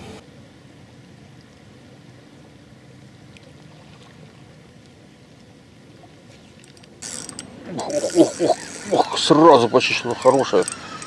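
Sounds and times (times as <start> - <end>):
water lapping: 2.6 - 11.0.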